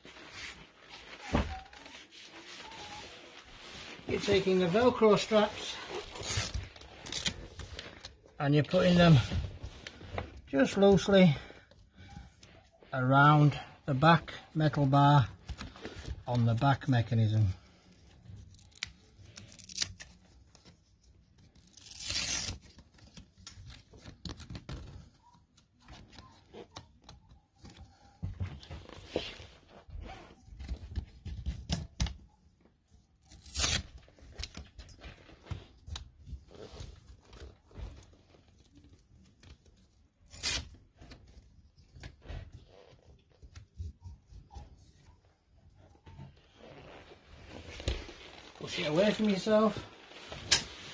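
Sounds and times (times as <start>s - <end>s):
faint rustling and handling: 0.0s - 50.9s
velcro strap ripping: 5.8s - 7.7s, 18.4s - 20.2s, 21.6s - 22.8s, 33.2s - 34.6s, 40.2s - 41.1s.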